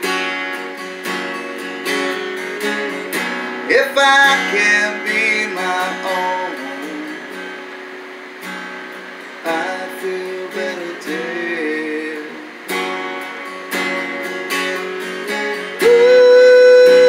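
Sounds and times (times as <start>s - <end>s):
acoustic guitar strumming: 0.0s - 17.0s
man singing: 2.8s - 7.4s, 9.4s - 12.7s, 15.6s - 17.0s.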